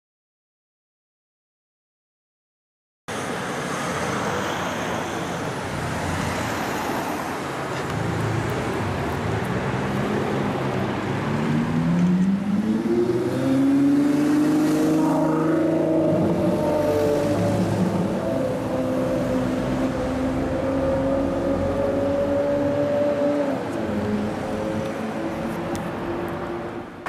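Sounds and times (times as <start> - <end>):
street traffic: 3.1 - 27.0
sports car engine accelerating: 8.6 - 26.4.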